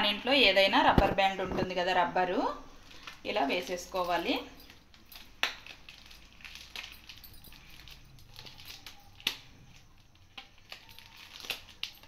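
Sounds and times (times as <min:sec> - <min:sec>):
plastic pouch crinkling: 0:02.8 - 0:12.0.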